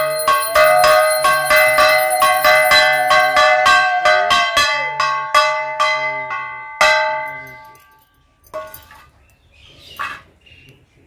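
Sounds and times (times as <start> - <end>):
hand bell ringing: 0.0 - 8.8.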